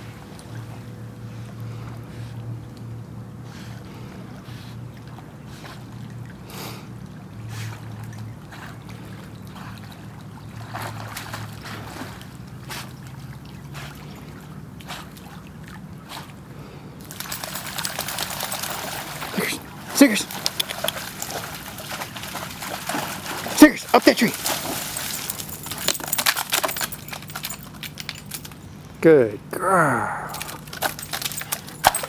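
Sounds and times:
water splashing: 17.0s - 28.3s.

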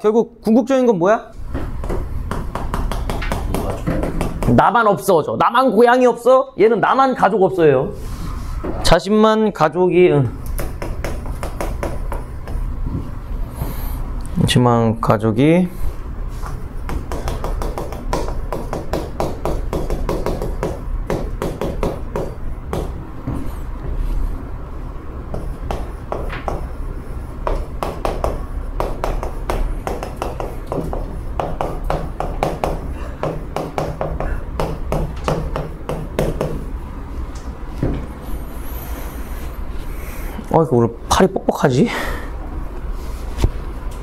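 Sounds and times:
steady low hum: 0.0s - 44.0s
chalk tapping and scraping: 1.7s - 4.6s, 10.6s - 13.8s, 16.3s - 24.2s, 25.3s - 36.6s.

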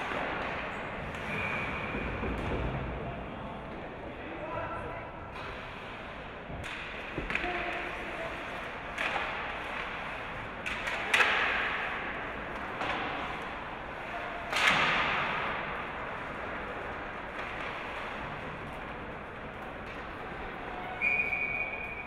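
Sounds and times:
hockey sticks cracking puck: 0.0s - 1.6s, 6.6s - 22.0s.

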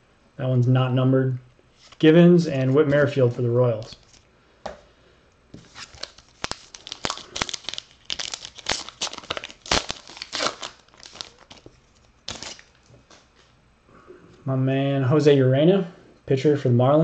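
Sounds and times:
wrapper crinkling and tearing: 5.6s - 12.9s.

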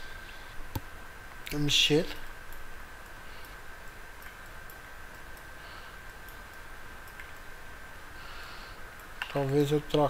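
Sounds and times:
background hiss: 0.0s - 10.0s
computer mouse clicks: 6.3s - 7.5s.

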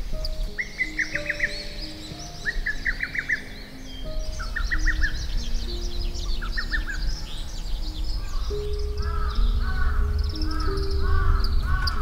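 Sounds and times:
background music with held notes: 0.0s - 12.0s
birds chirping: 0.0s - 12.0s
repeated arching bird call: 0.1s - 12.0s.

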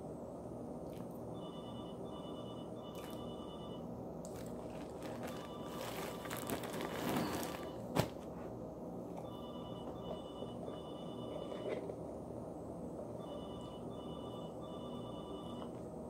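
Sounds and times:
plastic bag crinkling: 4.3s - 8.2s.

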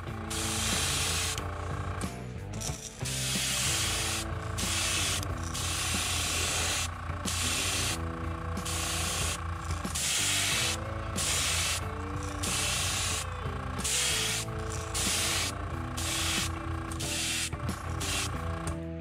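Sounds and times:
airbrush spraying hiss: 0.3s - 1.4s, 3.1s - 8.0s, 10.0s - 13.3s, 13.9s - 16.5s.

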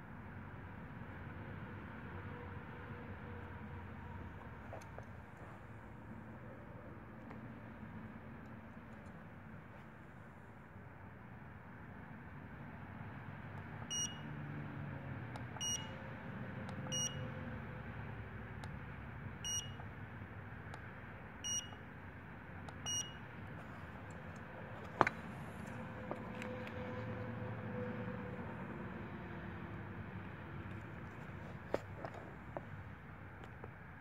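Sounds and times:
short high beeps: 15.6s - 15.9s, 16.9s - 17.2s, 19.4s - 19.8s, 21.4s - 21.8s, 22.9s - 23.2s.

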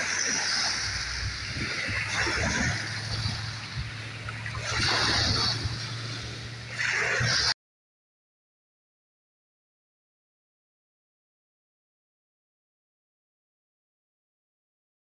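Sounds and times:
waves washing over pebbles: 0.0s - 7.6s.

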